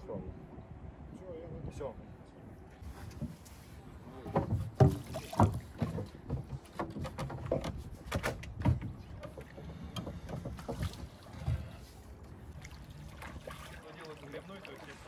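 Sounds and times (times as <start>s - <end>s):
wooden oars knocking on boat: 4.1s - 11.9s.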